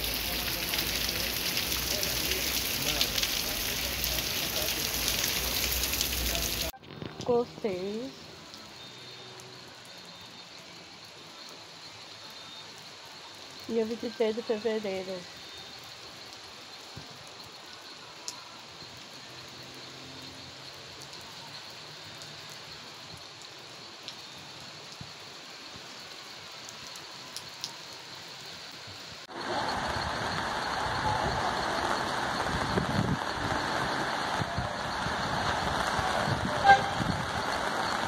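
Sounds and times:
drips ticking: 0.0 - 6.7
light rain: 0.0 - 38.0
rain on an umbrella: 0.0 - 38.0.

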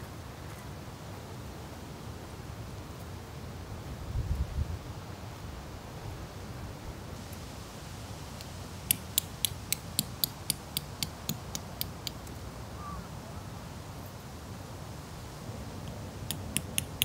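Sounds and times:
low wind rumble: 3.5 - 8.9
light sharp clicks: 8.4 - 12.4, 15.8 - 17.0.

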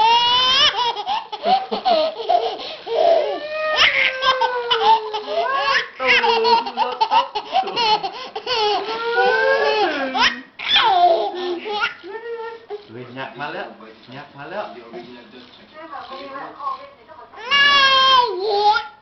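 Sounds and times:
baby laughing: 0.0 - 12.1, 17.4 - 19.0.

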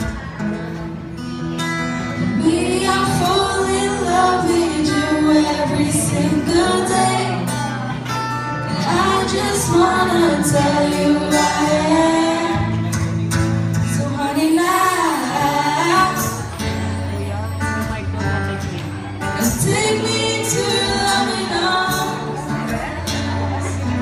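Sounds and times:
guitar accompaniment: 0.0 - 24.0
woman singing into a microphone: 2.2 - 13.1, 13.8 - 16.8, 19.4 - 24.0.

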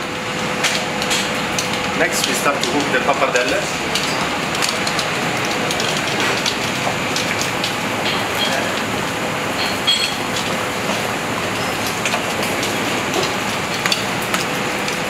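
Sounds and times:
kitchen extraction fan: 0.0 - 15.0
water boiling rushing: 0.0 - 15.0.

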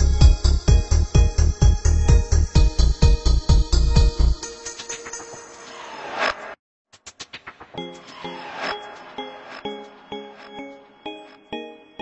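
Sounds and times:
electronic music: 0.0 - 12.0.

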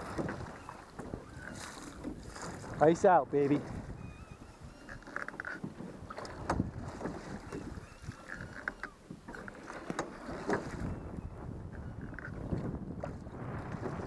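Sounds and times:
paddle strokes swishing and dripping: 0.0 - 14.0.

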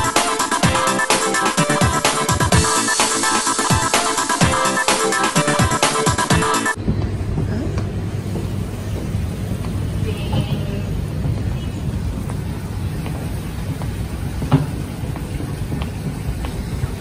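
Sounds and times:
electronic dance music: 0.0 - 6.8
city ambience rumble: 6.7 - 17.0.

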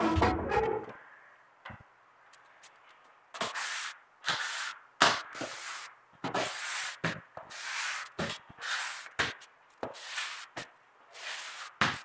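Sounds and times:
squeegee scraping wet concrete: 3.4 - 12.0.

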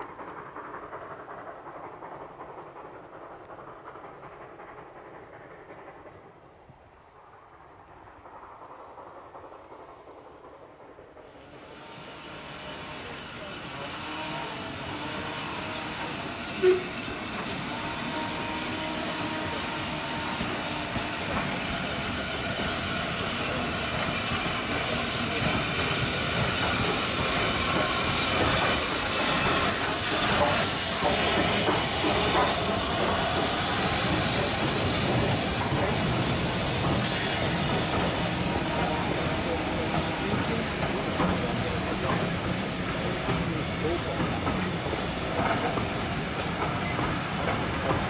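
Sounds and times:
steam hiss: 0.0 - 48.0
steam locomotive exhaust beats: 0.0 - 48.0
train coaches rolling by: 0.0 - 48.0.

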